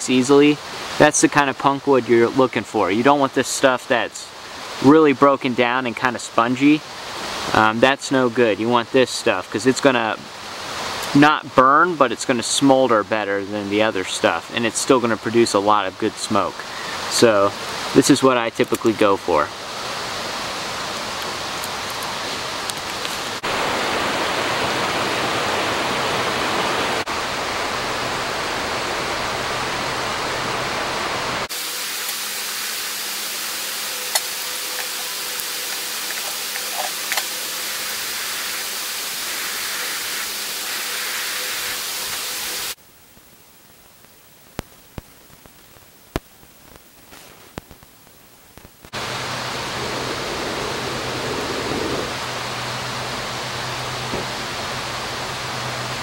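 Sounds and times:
steady rushing noise: 0:16.3 - 0:42.8, 0:48.6 - 0:56.0.

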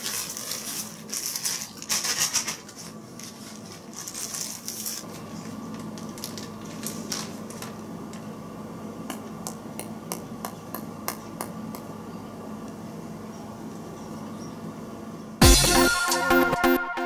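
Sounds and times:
plastic bag crinkling: 0:00.0 - 0:08.0
steady low hum: 0:00.0 - 0:16.8.

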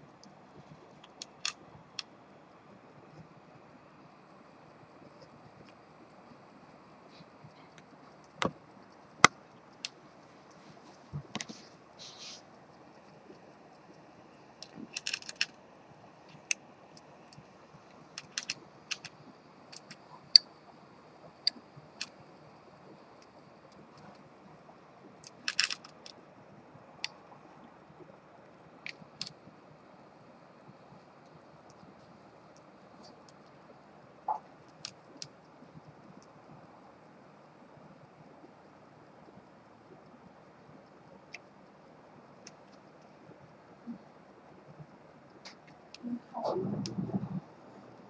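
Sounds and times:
pocket watch metallic clicks: 0:00.9 - 0:03.3, 0:12.8 - 0:15.6, 0:16.2 - 0:20.5, 0:25.1 - 0:26.2.

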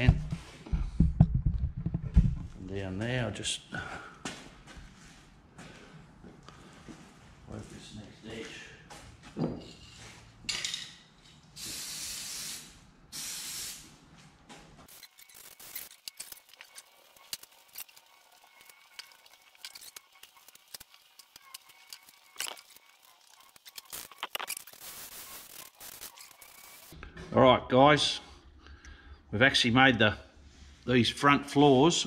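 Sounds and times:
aerosol can spraying: 0:11.6 - 0:13.9.

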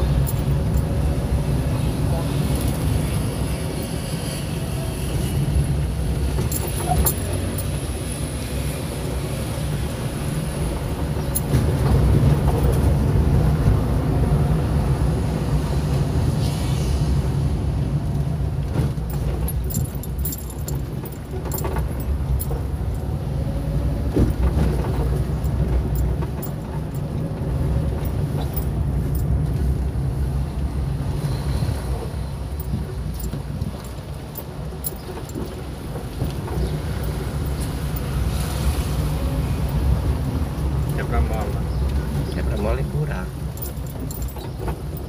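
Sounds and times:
engine and tyre rumble: 0:00.0 - 0:45.0
rattling clicks inside car: 0:18.1 - 0:23.4, 0:24.0 - 0:29.9, 0:32.5 - 0:38.4, 0:40.8 - 0:45.0.

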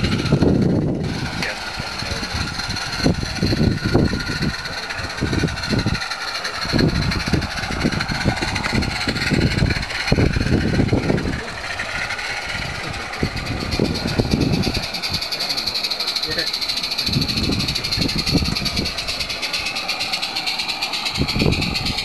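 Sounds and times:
wind rumbling on microphone: 0:00.0 - 0:19.8, 0:21.0 - 0:22.0
steady high hiss: 0:01.0 - 0:22.0.

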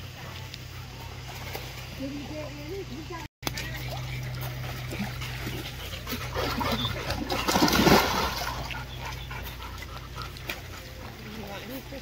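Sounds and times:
water splashing: 0:01.2 - 0:12.0.

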